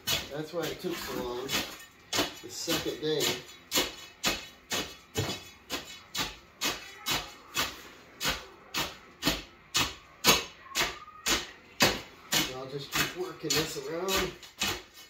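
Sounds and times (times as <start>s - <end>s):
hand tool crunching into gravel: 0.0s - 6.4s, 12.4s - 15.0s.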